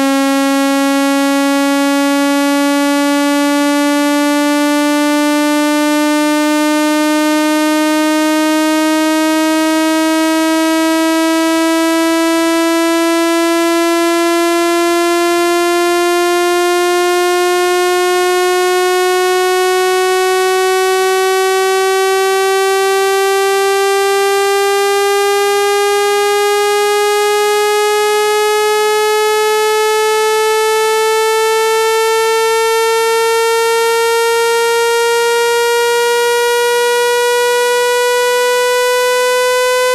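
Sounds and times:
buzzy rising electronic tone: 28.3s - 39.9s.

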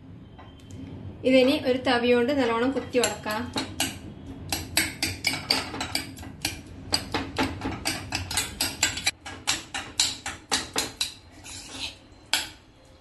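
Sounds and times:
metal ladle knocking in a pot: 3.0s - 11.1s.

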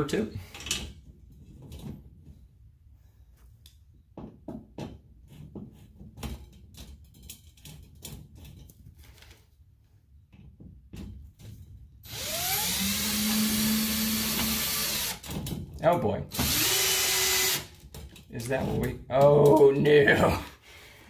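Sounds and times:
cordless drill whining: 12.1s - 15.3s, 16.3s - 17.8s.

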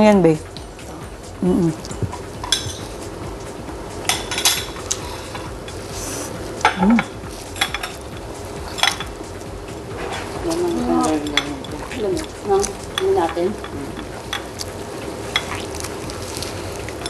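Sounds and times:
cutlery and dishes clinking: 2.4s - 2.9s, 4.1s - 6.0s, 6.6s - 9.2s, 9.9s - 14.7s, 15.3s - 15.8s.

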